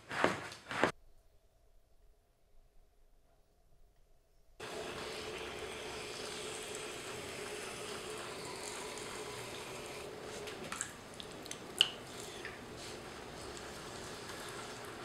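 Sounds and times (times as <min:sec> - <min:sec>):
wet clay swishing on potter's wheel: 0:00.0 - 0:01.0, 0:04.6 - 0:15.0.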